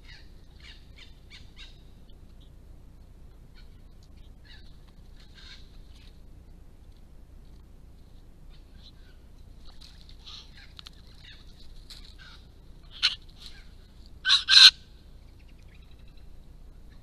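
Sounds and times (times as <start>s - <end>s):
harsh bird calls: 0.0s - 2.6s, 3.5s - 6.2s, 8.5s - 17.0s
birds chirping and chattering: 0.0s - 17.0s.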